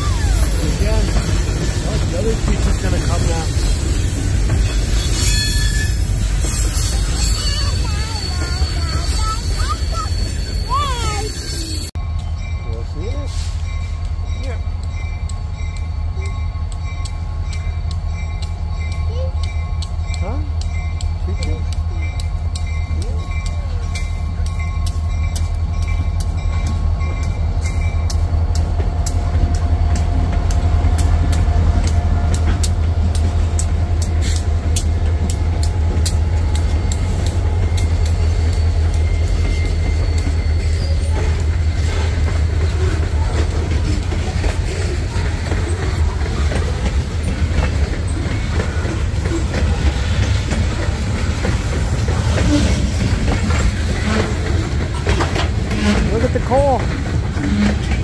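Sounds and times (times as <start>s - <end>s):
freight train rumbling past: 0.0s - 58.0s
wheels clicking over rail joints: 14.8s - 58.0s.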